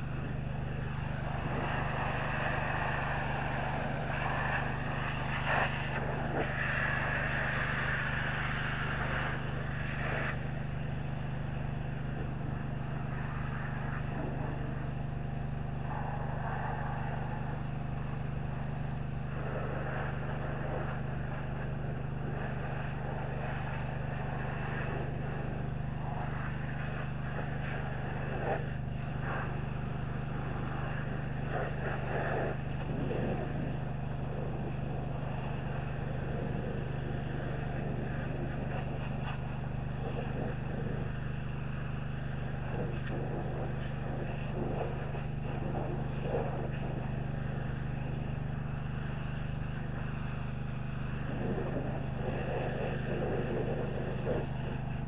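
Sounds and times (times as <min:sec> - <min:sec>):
pressure washer engine drone: 0:00.0 - 0:55.0.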